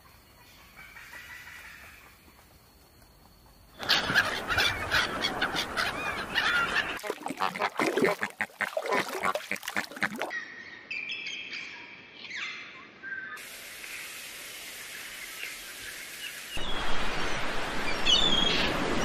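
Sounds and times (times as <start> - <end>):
waterfowl calling: 3.8 - 10.4
bird calls: 3.8 - 11.7
steady hiss: 13.4 - 18.1.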